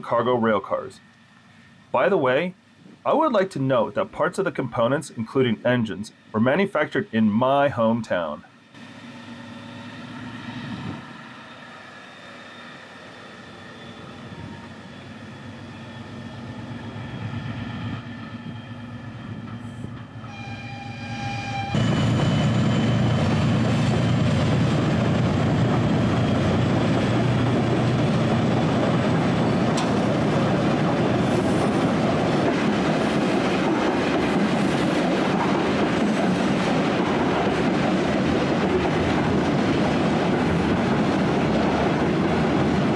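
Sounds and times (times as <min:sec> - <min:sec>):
diesel locomotive engine working hard: 0:08.5 - 0:42.9
locomotive horn: 0:20.2 - 0:22.0.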